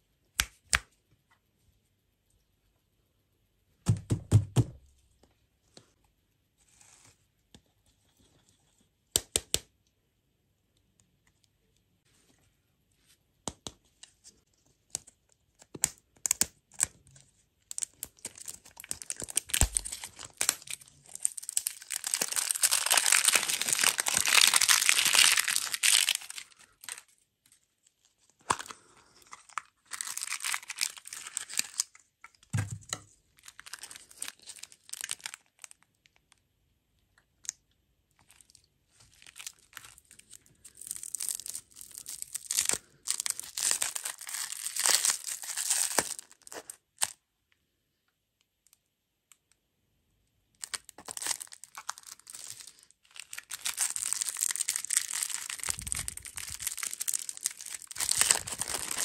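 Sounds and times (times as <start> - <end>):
candy wrapper crinkling: 15.0 - 36.2, 38.2 - 47.2, 50.6 - 59.0.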